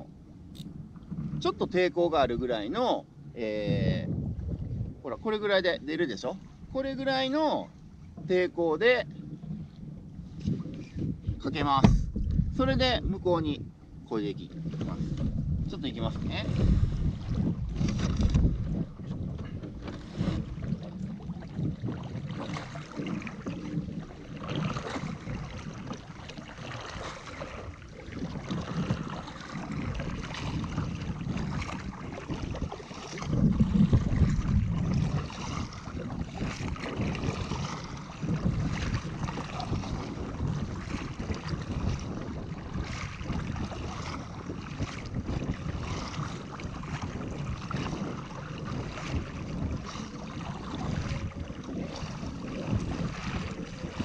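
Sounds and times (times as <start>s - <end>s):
paddle strokes: 0.0s - 2.9s, 4.5s - 54.0s
wind rumbling on microphone: 0.0s - 54.0s
water splashing: 14.1s - 54.0s.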